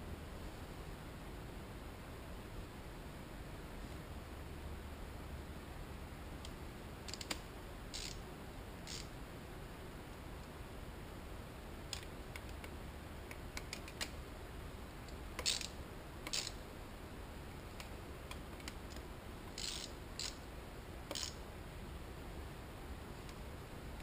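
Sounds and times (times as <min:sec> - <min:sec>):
hand ratchet clicking: 0:07.1 - 0:08.2, 0:08.9 - 0:09.1, 0:15.4 - 0:16.6, 0:18.6 - 0:20.4, 0:21.1 - 0:21.4
metal tools clicking: 0:07.1 - 0:08.2, 0:08.9 - 0:09.1, 0:15.4 - 0:16.6, 0:19.6 - 0:20.4, 0:21.1 - 0:21.4.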